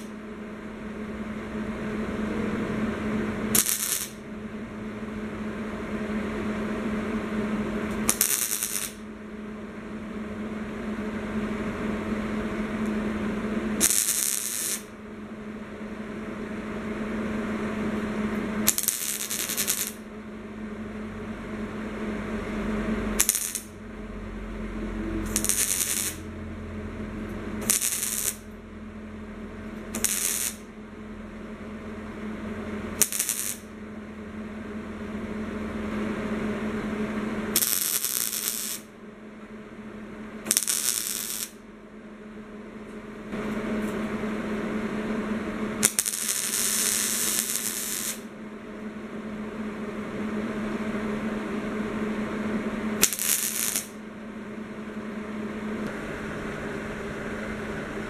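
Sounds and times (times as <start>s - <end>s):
welder hum: 0.0s - 39.0s, 40.1s - 58.0s
welding arc crackle: 3.5s - 4.2s, 7.9s - 9.0s, 13.8s - 14.9s, 18.7s - 20.1s, 23.2s - 23.8s, 25.2s - 26.3s, 27.6s - 28.5s, 29.9s - 30.7s, 33.0s - 33.7s, 37.6s - 38.9s, 40.5s - 41.6s, 45.8s - 48.3s, 53.0s - 54.0s.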